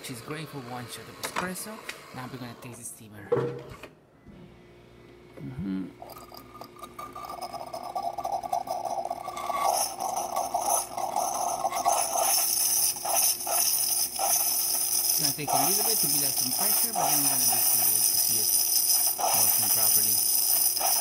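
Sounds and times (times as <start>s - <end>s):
steam hiss: 11.7s - 21.0s
steam wand sputtering rush: 11.8s - 21.0s.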